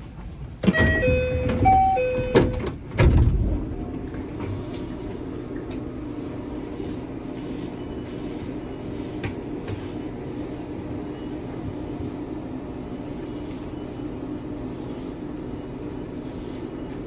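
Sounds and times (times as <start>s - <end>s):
standing train humming: 0.0s - 17.0s
sliding doors moving: 0.1s - 13.5s
train door chime: 0.6s - 2.8s
heavy door thuds: 0.6s - 3.7s.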